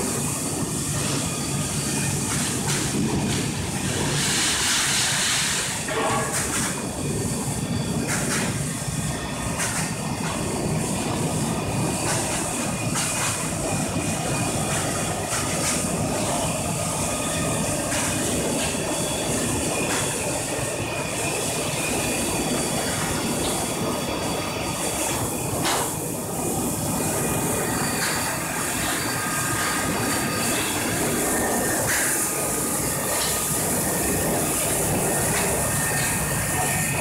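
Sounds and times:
water churning and hissing: 0.0s - 7.4s, 10.5s - 37.0s
machine drone: 0.0s - 37.0s.

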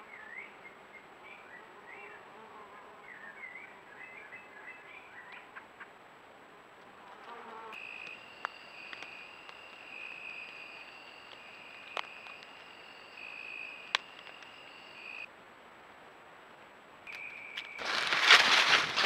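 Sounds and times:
crickets trilling: 7.8s - 15.3s.

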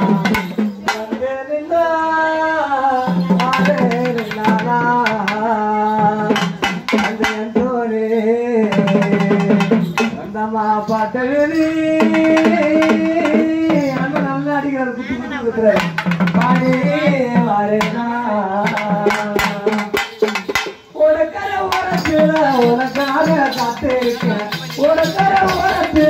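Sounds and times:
man singing through loudspeaker: 0.0s - 26.0s.

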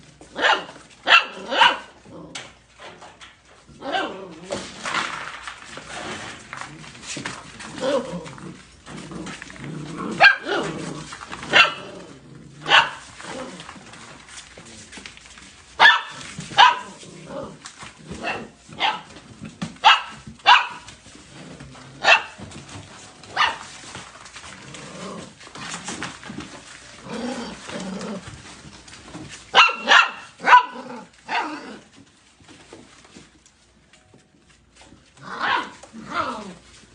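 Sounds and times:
puppies barking: 0.3s - 2.0s, 10.0s - 10.8s, 11.4s - 13.3s, 15.8s - 17.0s, 18.1s - 21.0s, 21.9s - 24.6s, 29.4s - 31.9s, 35.3s - 36.4s.

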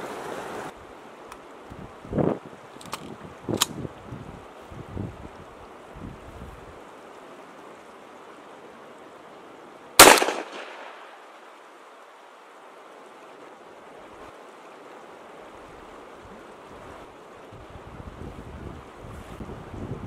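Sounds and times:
river rapids rushing: 0.0s - 1.2s
rifle gunshot with echo: 10.0s - 11.1s.

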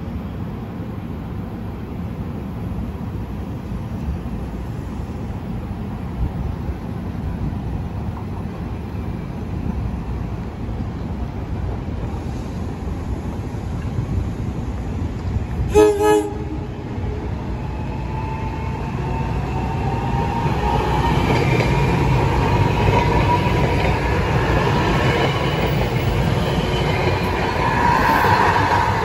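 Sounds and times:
train rumble passing: 0.0s - 29.0s
train whine: 0.0s - 29.0s
train horn blasts: 15.7s - 16.7s.

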